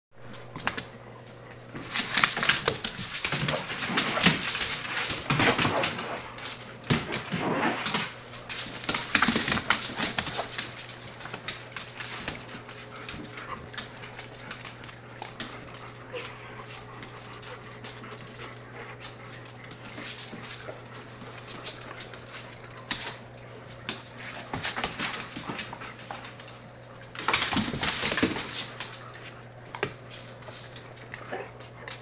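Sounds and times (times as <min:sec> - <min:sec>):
dog claws clicking on hardwood floor: 0:00.2 - 0:16.3, 0:16.9 - 0:32.0
dogs whimpering: 0:15.7 - 0:20.9.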